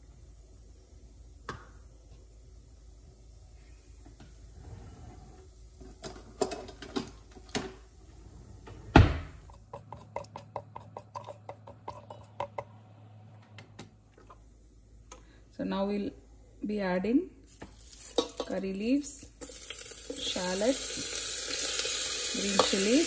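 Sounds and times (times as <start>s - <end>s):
seeds popping in hot oil: 17.5s - 23.0s.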